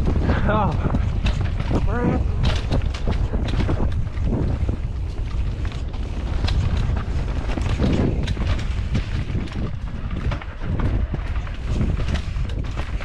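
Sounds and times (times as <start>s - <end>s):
bike rattling over roots and rocks: 0.0s - 13.0s
wind rumble on microphone: 0.0s - 13.0s.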